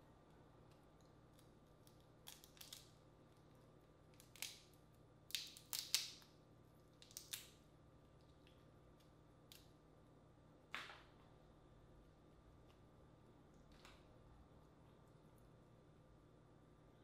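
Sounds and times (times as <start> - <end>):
crawfish shell cracking: 1.4 - 2.9, 4.1 - 4.7, 5.3 - 6.3, 7.0 - 7.6.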